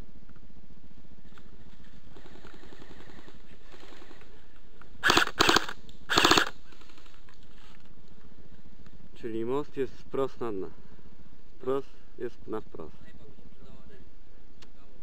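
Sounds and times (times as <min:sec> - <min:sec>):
airsoft gun automatic bursts: 0:05.0 - 0:06.6.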